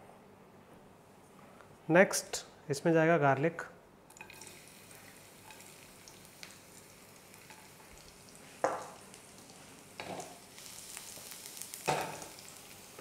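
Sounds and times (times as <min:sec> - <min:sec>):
garlic sizzling in oil: 0:04.2 - 0:13.0.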